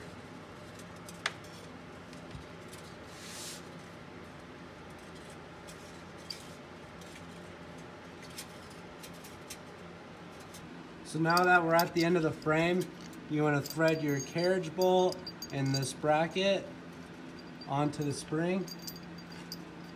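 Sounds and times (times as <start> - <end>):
faint steady hum: 0.0 - 19.9
soft scrape: 3.0 - 3.7.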